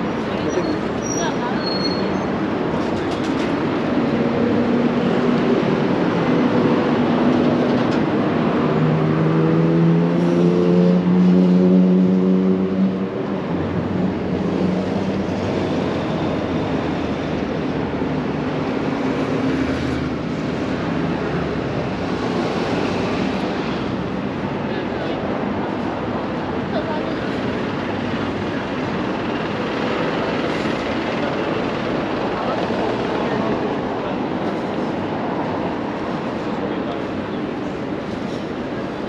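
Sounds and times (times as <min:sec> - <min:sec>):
road traffic passing: 0:00.0 - 0:39.0.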